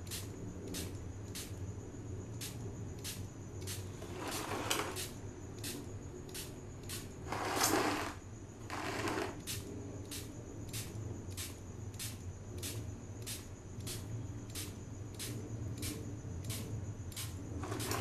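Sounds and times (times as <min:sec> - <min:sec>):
spray bottle spritzing: 0:17.2 - 0:18.0.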